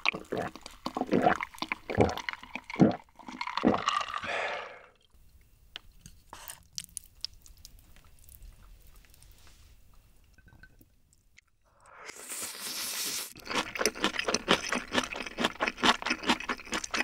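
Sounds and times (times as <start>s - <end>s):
person gulping a drink: 0.0s - 5.1s
breathy exhale: 4.2s - 4.9s.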